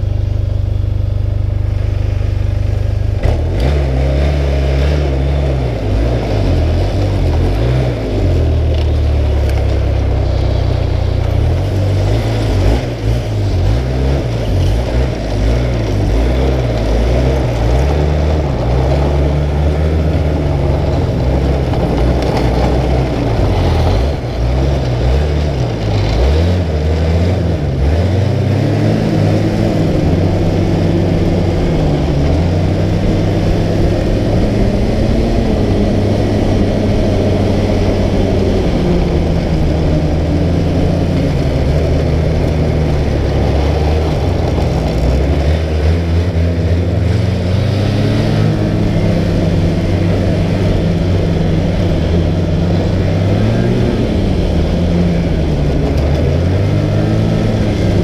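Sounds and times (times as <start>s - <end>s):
snowmobile engine running: 0.0s - 58.0s.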